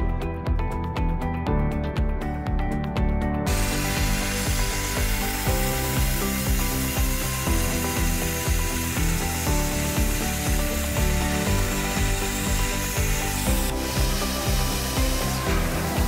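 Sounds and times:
background music: 0.0 - 16.0
plasma cutter hissing: 3.5 - 16.0.

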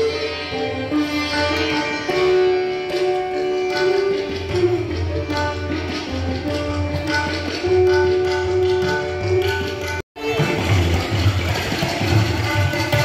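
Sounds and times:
sitar melody: 0.0 - 13.0
tabla drumming: 0.0 - 13.0.

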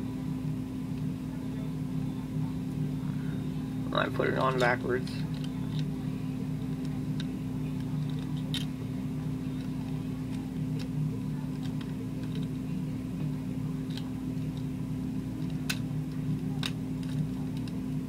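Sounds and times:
low electrical hum: 0.0 - 18.0
plastic parts clicking: 6.7 - 8.7, 11.5 - 12.5, 13.8 - 14.6, 15.4 - 15.8, 16.4 - 17.8.

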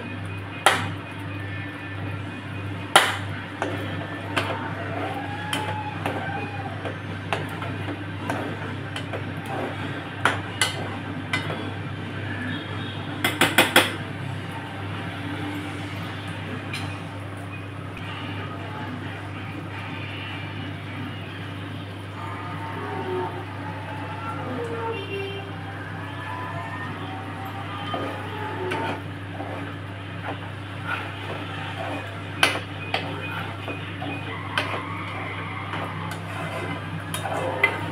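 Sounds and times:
metal spoon scraping metal pan: 27.8 - 37.9.

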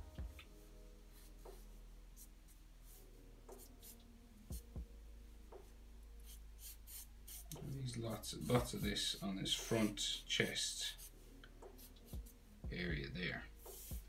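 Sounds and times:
faint low hum: 0.0 - 14.0
marker scratching on paper: 1.2 - 4.6, 5.6 - 12.4, 13.6 - 14.0.

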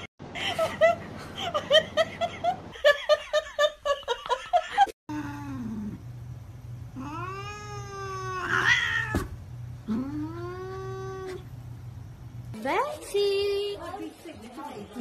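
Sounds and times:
low steady hum: 5.1 - 13.8
cat meowing: 7.0 - 9.3.

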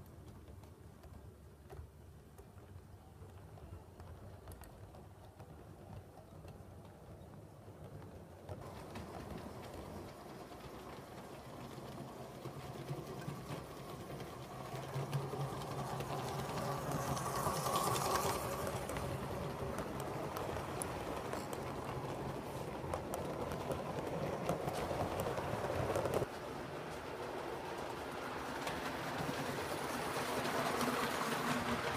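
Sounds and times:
model train whirring on track: 6.4 - 31.9.

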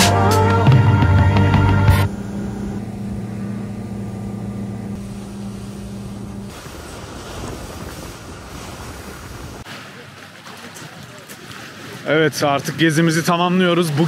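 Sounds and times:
speedboat engine humming: 0.0 - 14.0
water rushing past boat: 5.0 - 14.0.

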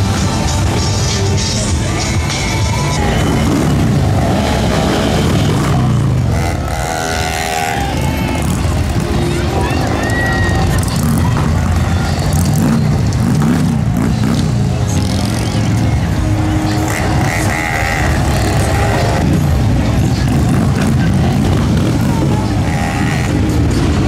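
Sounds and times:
crowd voices: 0.0 - 24.0
motorcycle engines rumbling: 0.0 - 24.0.

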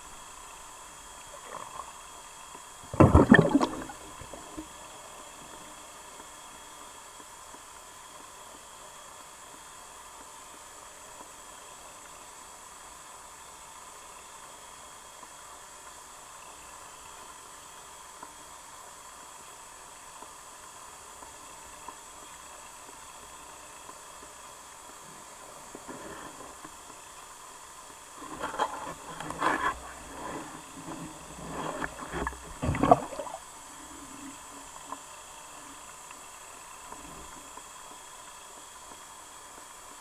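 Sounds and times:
faint underwater hiss: 0.0 - 40.0
water gurgling and knocking: 2.9 - 4.7, 29.1 - 33.4.

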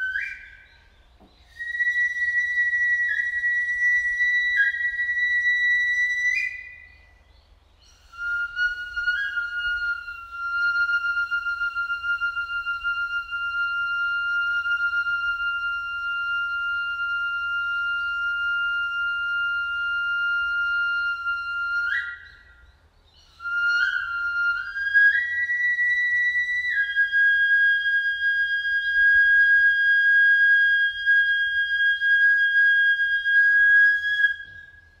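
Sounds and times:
flute long notes: 0.0 - 7.2, 7.8 - 35.0.

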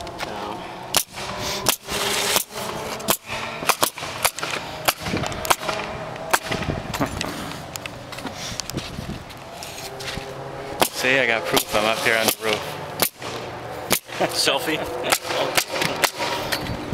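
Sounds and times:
nail guns firing: 0.9 - 7.1, 10.8 - 14.4, 15.1 - 16.6.

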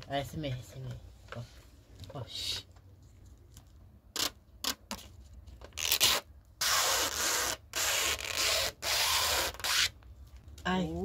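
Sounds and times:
plastic film peeling off: 5.6 - 9.9.

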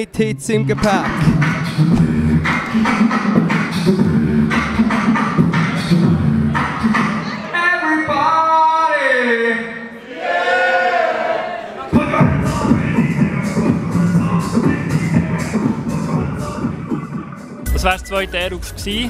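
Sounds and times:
beatboxing into a microphone: 0.0 - 7.4, 11.9 - 19.0.

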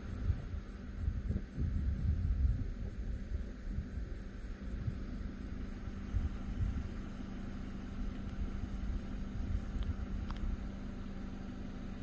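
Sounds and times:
low hum and rumble: 0.0 - 12.0
night insects chirping: 0.0 - 12.0
steady high insect trill: 0.0 - 12.0.

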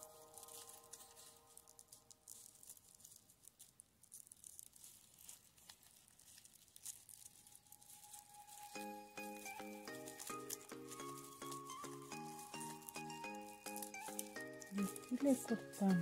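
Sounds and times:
soft background music: 0.0 - 2.1, 7.2 - 16.0
crepe paper crinkling: 0.0 - 16.0.

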